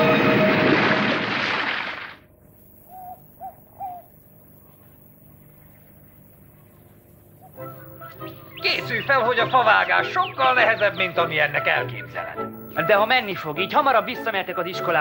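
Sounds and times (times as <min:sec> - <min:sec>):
owl hooting: 0:02.8 - 0:05.9, 0:06.5 - 0:13.8.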